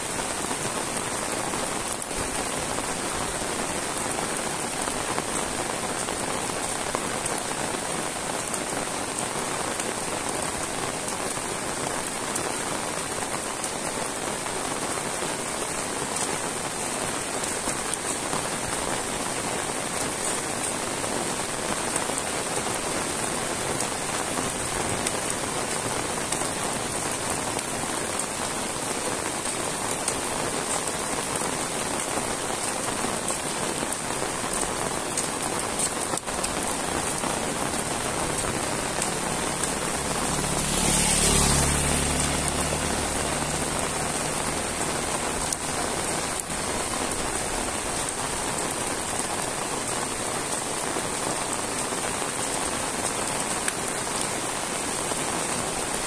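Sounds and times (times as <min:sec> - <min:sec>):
heavy rain on paved road: 0:00.0 - 0:56.0
vehicle passing: 0:38.0 - 0:45.8.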